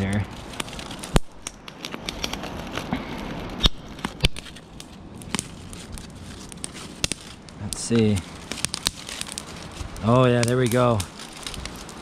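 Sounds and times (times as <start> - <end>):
campfire crackling: 0.0 - 12.0
sharp fire pops: 0.6 - 2.4, 3.5 - 5.7, 6.4 - 12.0.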